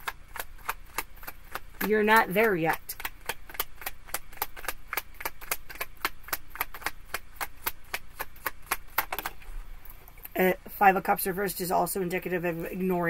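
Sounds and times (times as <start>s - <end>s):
cards being shuffled: 0.0s - 10.2s.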